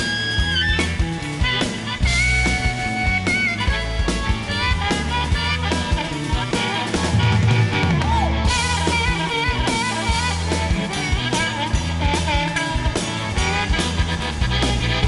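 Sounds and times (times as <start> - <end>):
amplified harmonica solo: 0.0 - 15.0
live band bass and drums: 0.0 - 15.0.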